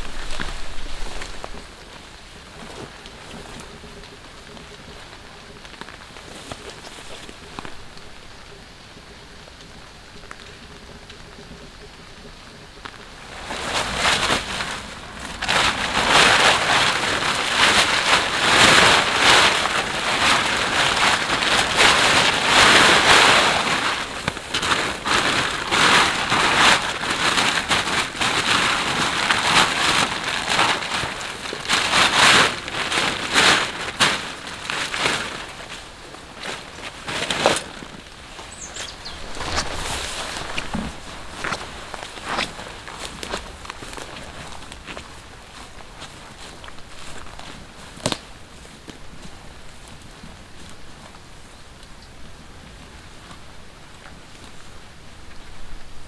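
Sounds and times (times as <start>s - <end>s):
light rain hiss: 0.0s - 56.0s
plastic tarp crinkling and rustling: 0.0s - 56.0s.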